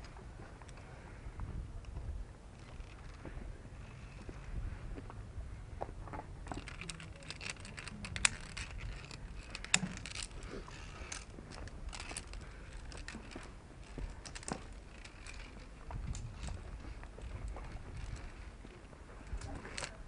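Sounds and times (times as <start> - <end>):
wind rumbling on microphone: 0.0 - 20.0
metal carabiners clinking: 6.5 - 18.5.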